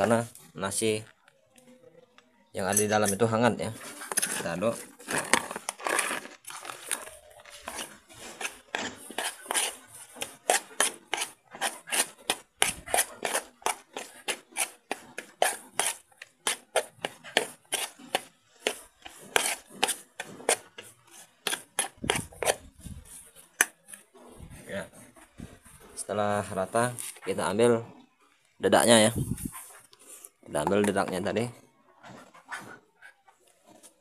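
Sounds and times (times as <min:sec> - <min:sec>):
metal spoon scraping metal pot: 0:02.7 - 0:26.2.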